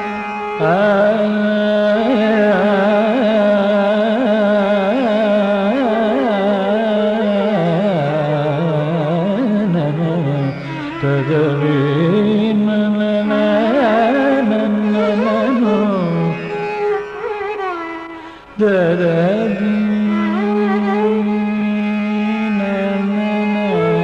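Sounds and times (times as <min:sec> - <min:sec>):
ornamented classical melody: 0:13.2 - 0:18.5.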